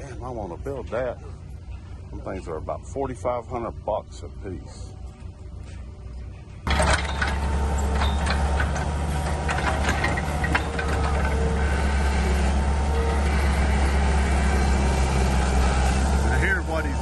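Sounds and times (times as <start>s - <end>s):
diesel engine under load: 0.0s - 17.0s
sharp knocks and clanks: 6.7s - 13.7s
auger drilling into ground: 6.7s - 17.0s.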